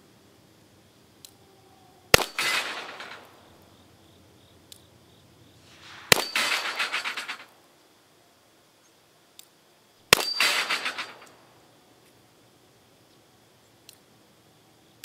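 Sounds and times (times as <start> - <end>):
revolver shots: 2.1 - 3.6, 5.7 - 7.6, 10.1 - 11.5
steel plate clanging: 2.2 - 3.4, 5.8 - 7.5, 10.2 - 11.4.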